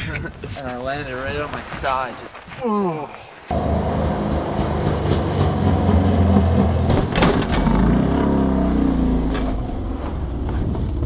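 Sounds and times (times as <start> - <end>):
snowmobile crashing down: 3.6 - 11.0.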